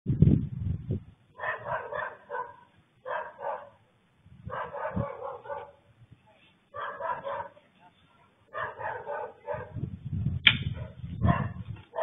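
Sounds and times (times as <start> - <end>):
dog barking: 1.4 - 3.8, 4.5 - 5.8, 6.7 - 7.6, 8.5 - 9.8, 10.7 - 12.0.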